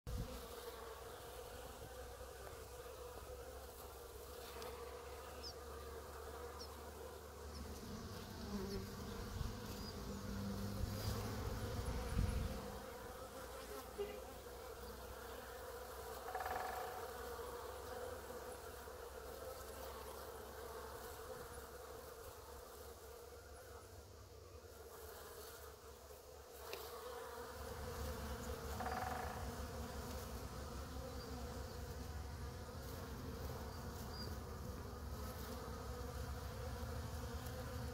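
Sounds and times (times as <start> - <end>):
honey bees buzzing: 0.1 - 37.9.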